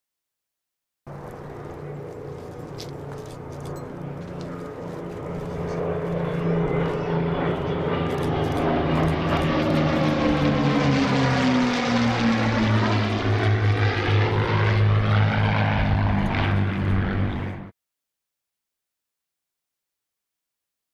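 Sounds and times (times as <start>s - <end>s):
propeller planes flying over: 1.1s - 17.7s.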